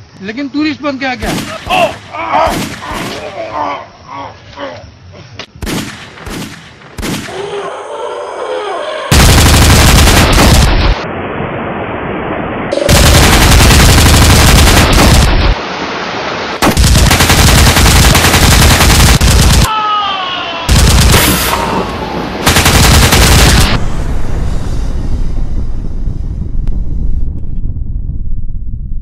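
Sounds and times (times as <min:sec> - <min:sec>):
rapid automatic gunfire: 0:09.1 - 0:11.0, 0:12.9 - 0:15.6, 0:16.6 - 0:19.7, 0:20.7 - 0:21.4, 0:22.4 - 0:23.8.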